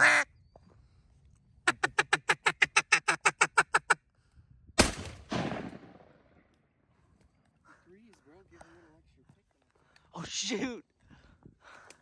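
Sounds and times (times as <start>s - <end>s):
duck call quacks: 0.0s - 0.3s, 1.6s - 4.0s.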